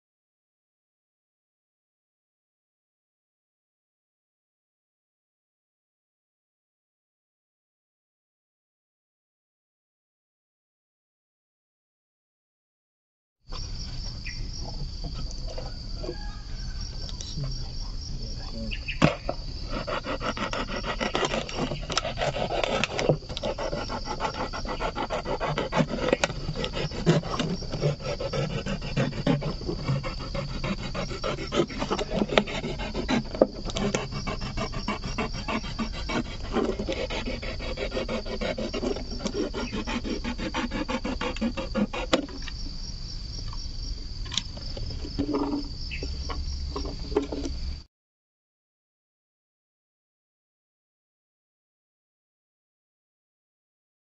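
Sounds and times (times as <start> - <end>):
high insect buzz: 15.7 - 47.8
knife sawing through plastic bottle: 19.6 - 42.4.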